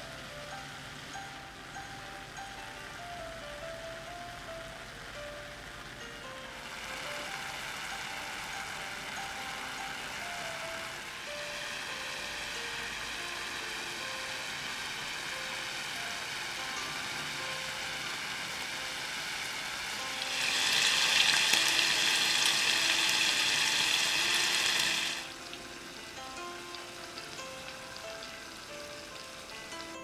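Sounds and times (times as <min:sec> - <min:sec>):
beef sizzling in oil: 0:06.5 - 0:30.0.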